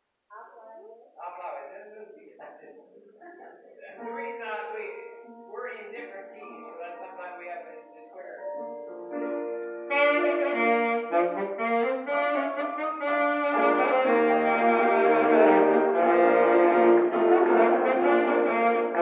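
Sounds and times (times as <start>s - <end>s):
piano accompaniment: 3.4s - 19.0s
alto saxophone melody: 9.2s - 19.0s.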